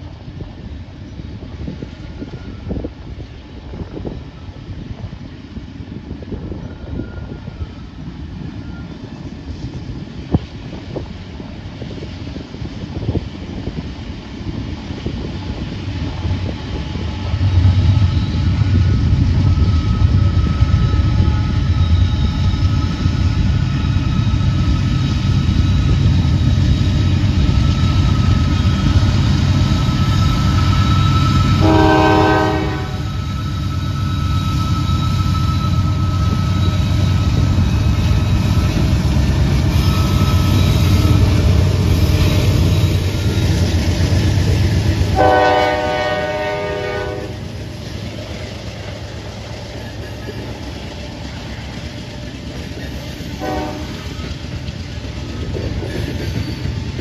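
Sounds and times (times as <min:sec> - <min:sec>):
locomotive engine rumble: 0:00.0 - 0:57.0
train horn blast: 0:31.1 - 0:33.3, 0:45.0 - 0:47.5, 0:53.4 - 0:54.3.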